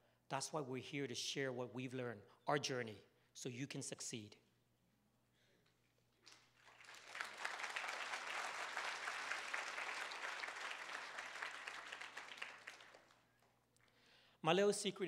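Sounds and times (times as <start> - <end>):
audience applauding: 6.2 - 13.5.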